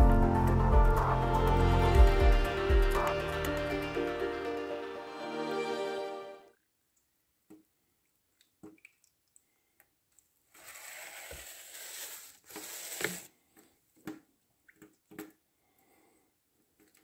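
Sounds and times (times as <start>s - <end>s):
paint roller rasping on plastic: 10.6s - 13.3s.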